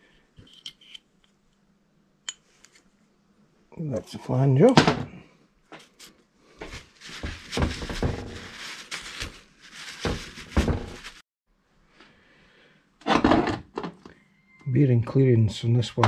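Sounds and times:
rag rustling: 6.6s - 11.2s.

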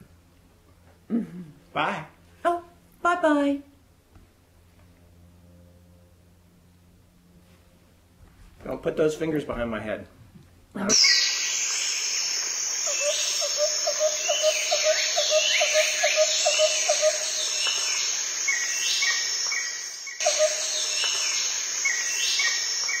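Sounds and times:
low pulsing call: 10.8s - 23.0s
bird chirps: 10.9s - 23.0s
insects buzzing: 10.9s - 23.0s.

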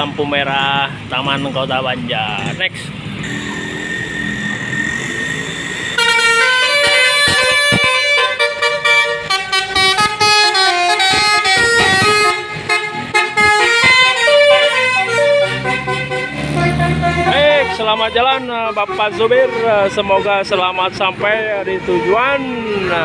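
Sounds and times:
street traffic: 0.0s - 23.0s
melody horn playing tune: 3.2s - 20.2s.

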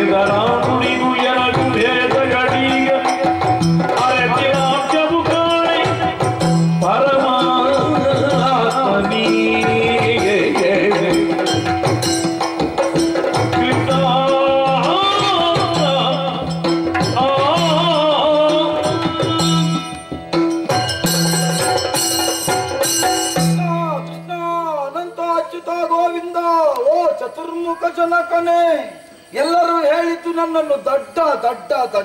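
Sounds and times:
person singing wavering melody: 0.0s - 11.7s, 13.2s - 20.2s
drums playing: 0.0s - 25.0s.

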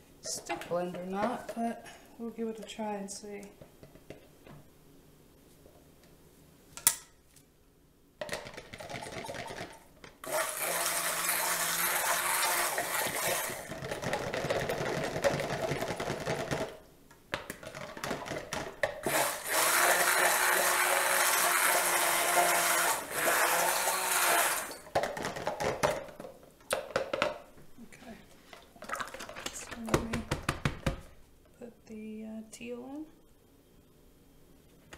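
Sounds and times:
stick blender whirring: 9.0s - 16.6s, 19.0s - 25.1s.

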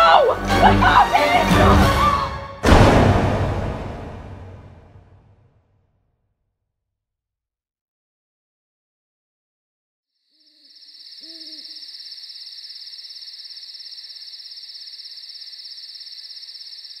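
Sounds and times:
cricket trill: 10.2s - 17.0s
owl hooting: 10.4s - 13.6s.

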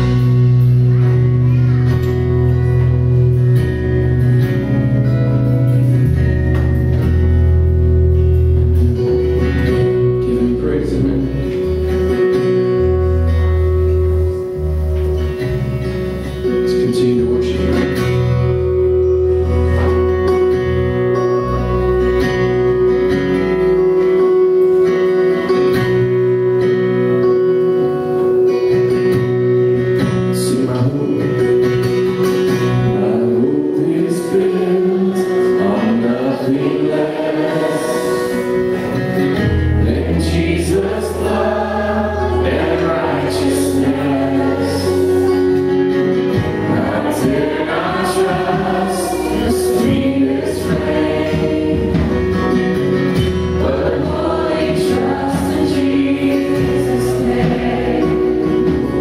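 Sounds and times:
acoustic guitar: 0.0s - 59.0s
people singing worship song: 32.9s - 45.7s, 46.3s - 59.0s.

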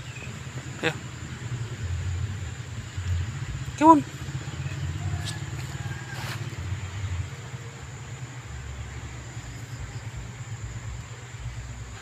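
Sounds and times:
distant road traffic rumble: 0.0s - 12.0s
dry leaves rustling: 4.2s - 7.3s.

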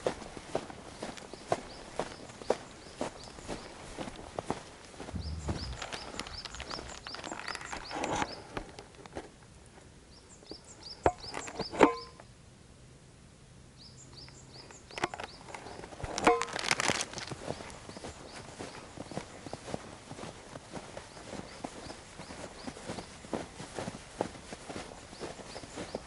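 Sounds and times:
footsteps on a road: 0.0s - 9.4s, 15.5s - 26.0s.

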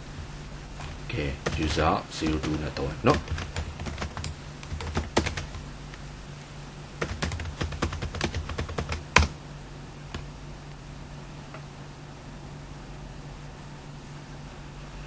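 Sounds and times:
low steady hum: 0.0s - 15.0s
keyboard typing: 0.8s - 5.6s, 7.0s - 9.4s.

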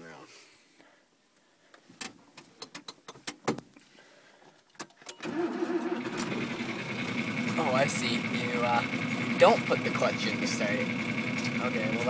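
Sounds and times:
tractor control clicks and knocks: 2.0s - 3.6s
diesel engine starting and running: 5.2s - 12.0s.

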